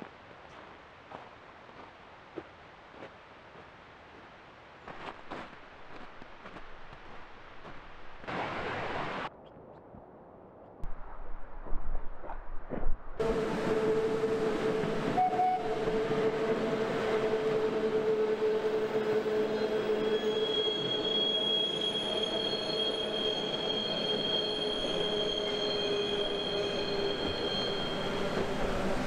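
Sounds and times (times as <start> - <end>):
electric train humming past: 13.2 - 29.0
high-pitched wheel squeal: 13.8 - 29.0.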